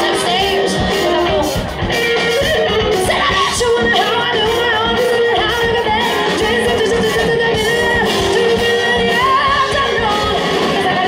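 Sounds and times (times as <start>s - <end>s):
live band playing: 0.0s - 11.0s
woman singing lead: 0.0s - 11.0s.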